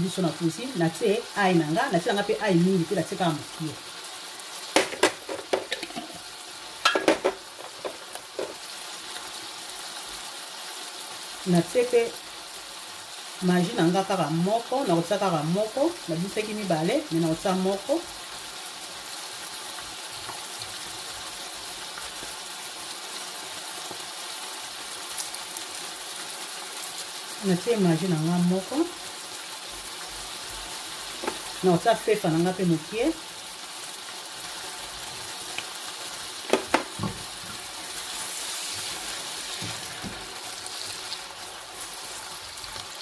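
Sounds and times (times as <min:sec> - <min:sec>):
meat sizzling in a pan: 0:00.0 - 0:43.0
knock: 0:04.8 - 0:05.7, 0:06.9 - 0:08.6, 0:36.5 - 0:37.2.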